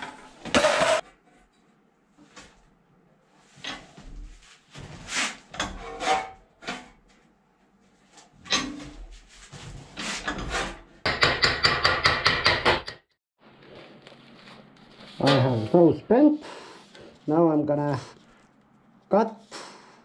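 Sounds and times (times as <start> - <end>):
metal scraping and clanking: 0.0 - 1.1, 4.8 - 6.9.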